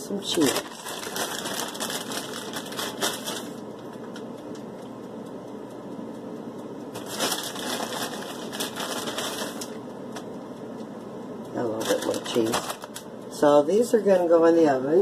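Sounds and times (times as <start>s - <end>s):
plastic packaging crinkling: 0.2s - 4.2s, 7.0s - 9.8s, 11.8s - 13.1s.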